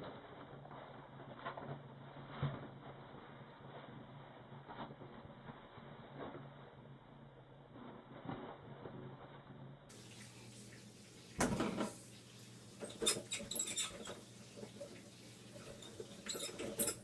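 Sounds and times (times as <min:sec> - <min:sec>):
toilet paper rustling and clicking: 0:00.0 - 0:06.7, 0:09.9 - 0:17.0.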